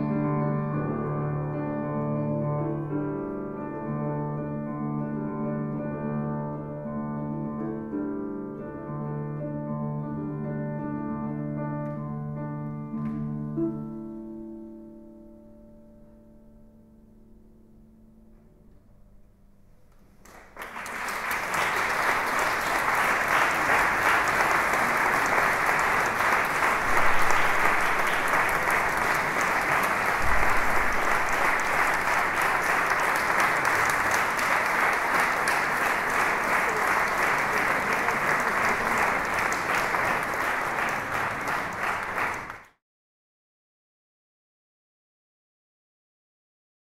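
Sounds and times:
audience applauding: 0:20.2 - 0:42.7.

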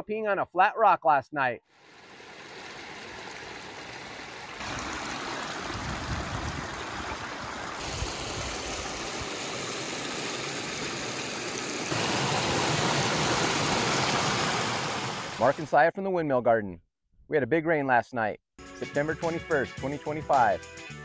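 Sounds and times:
storm runoff rushing over rocks: 0:01.8 - 0:15.6.

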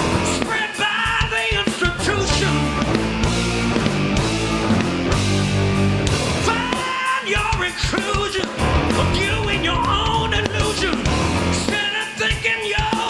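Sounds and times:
electric guitar lead: 0:00.0 - 0:00.8, 0:01.9 - 0:07.2, 0:08.4 - 0:12.0
drums: 0:00.0 - 0:13.0
live rock band: 0:00.0 - 0:13.0.

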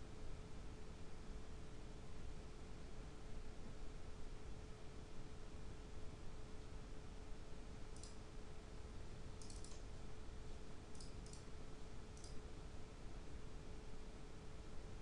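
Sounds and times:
faint hum: 0:00.0 - 0:15.0
computer mouse buttons clicking: 0:09.4 - 0:09.8, 0:10.9 - 0:11.5, 0:12.2 - 0:12.4.

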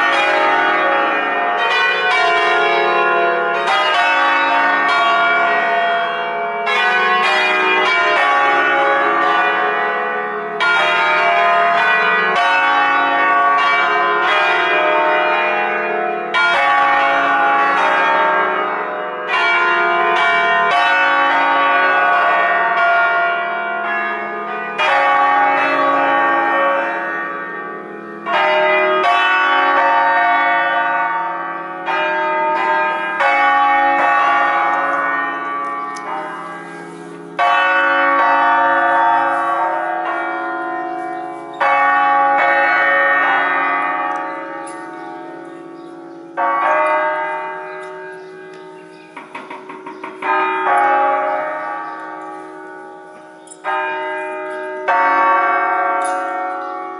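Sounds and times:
church bells ringing: 0:00.0 - 0:56.9.

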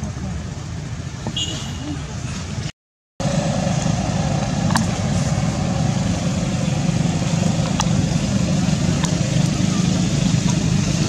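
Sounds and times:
low outdoor rumble: 0:01.9 - 0:11.0.

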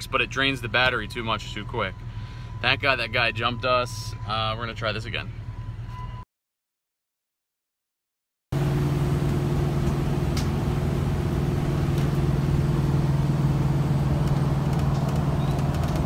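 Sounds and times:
engine low drone: 0:00.0 - 0:06.1, 0:08.6 - 0:16.0
light clicks and rattles: 0:14.2 - 0:16.0.

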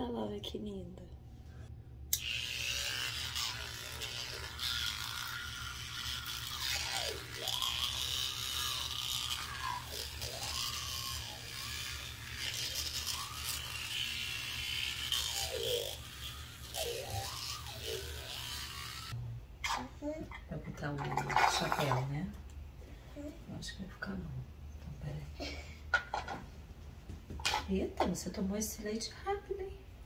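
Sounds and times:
toothbrush scrubbing teeth: 0:02.2 - 0:19.8.

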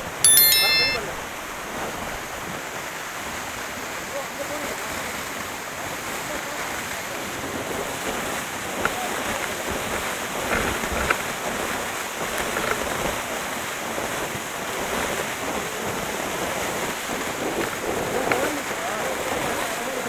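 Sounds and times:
waterfall rushing and splashing: 0:02.7 - 0:10.4.

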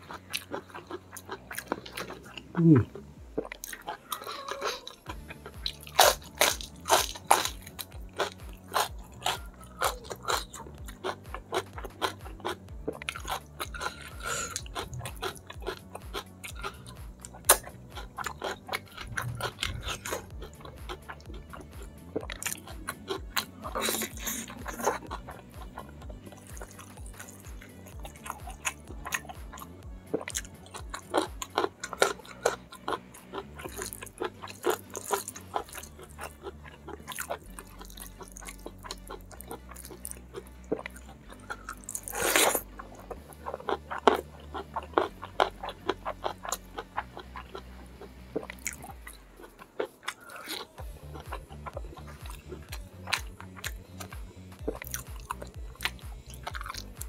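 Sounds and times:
chewing food: 0:00.0 - 0:57.0
crisp crunching bites: 0:03.5 - 0:21.6, 0:30.2 - 0:47.4.

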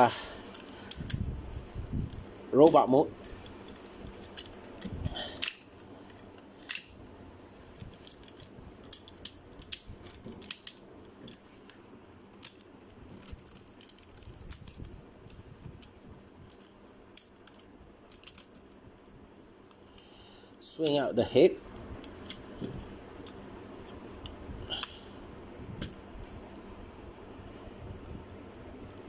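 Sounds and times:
plastic toy parts clicking: 0:00.5 - 0:01.2, 0:03.4 - 0:06.9, 0:07.8 - 0:18.8.

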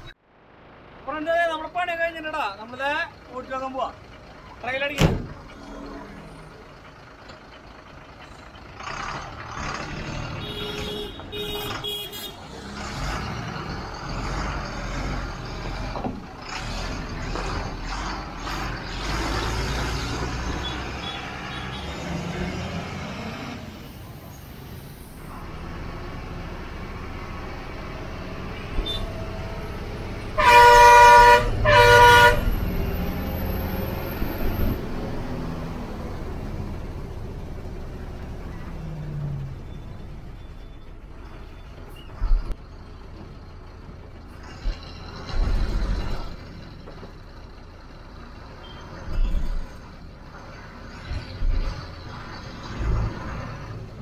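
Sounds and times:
truck engine and road noise: 0:00.0 - 0:54.0
truck horn blasts: 0:10.3 - 0:12.5, 0:28.6 - 0:29.2, 0:30.3 - 0:32.5.

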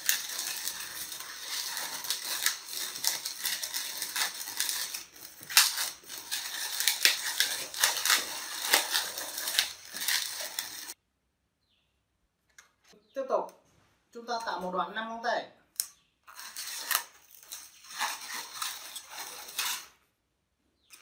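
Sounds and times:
balloons squeaking: 0:00.0 - 0:11.0, 0:16.3 - 0:20.0.

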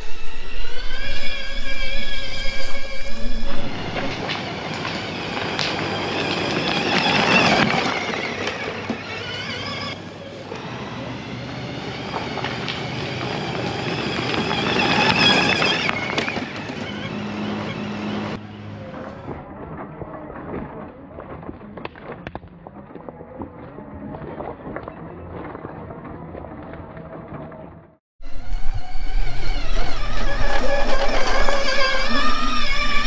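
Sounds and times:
rough rushing ride noise: 0:00.0 - 0:19.6, 0:28.2 - 0:33.0
electric motor whining: 0:00.0 - 0:21.0, 0:28.2 - 0:33.0.

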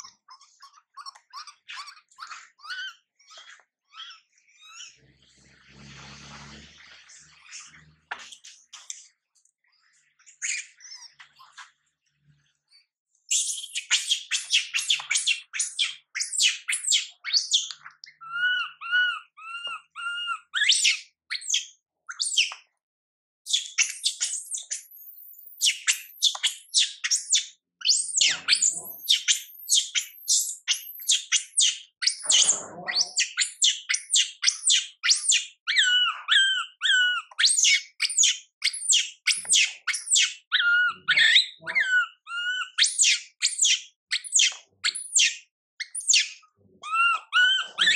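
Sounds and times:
monkey squealing: 0:00.0 - 0:05.0, 0:18.2 - 0:21.0, 0:32.0 - 0:38.2, 0:38.9 - 0:47.9
baby monkey screeching: 0:00.0 - 0:05.1, 0:13.3 - 0:21.6, 0:23.5 - 0:47.9.

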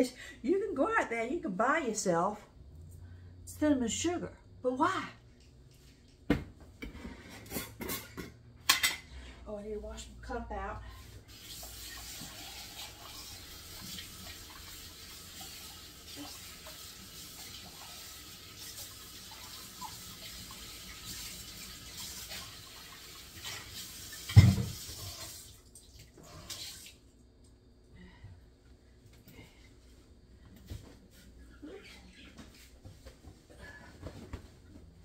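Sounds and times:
cup being rinsed: 0:11.2 - 0:26.9
faucet running into steel sink: 0:11.3 - 0:27.0.

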